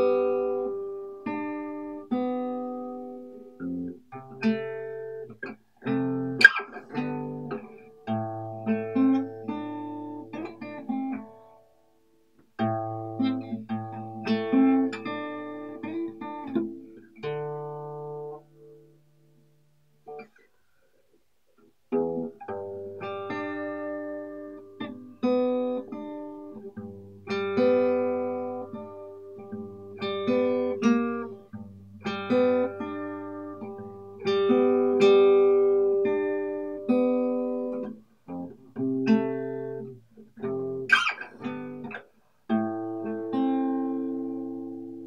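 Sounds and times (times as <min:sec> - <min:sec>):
acoustic guitar chords: 0:00.0 - 0:20.4, 0:21.9 - 0:45.0.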